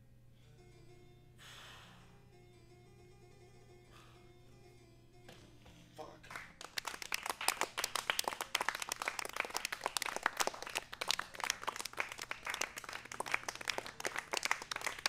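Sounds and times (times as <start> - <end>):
audience applauding: 6.2 - 15.0.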